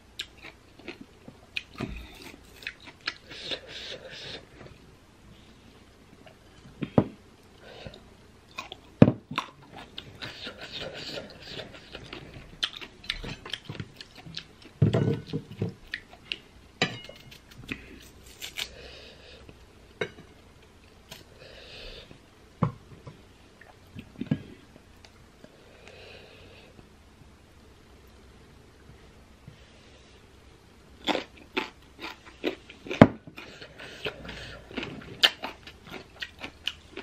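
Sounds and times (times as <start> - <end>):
crunchy chewing of mango: 0.2 - 4.5, 8.5 - 14.8, 31.0 - 37.0.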